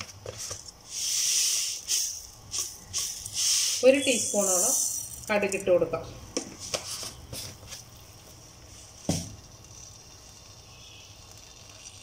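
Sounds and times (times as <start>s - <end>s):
seeds sizzling in oil: 0.3s - 12.0s
seeds crackling: 7.6s - 12.0s.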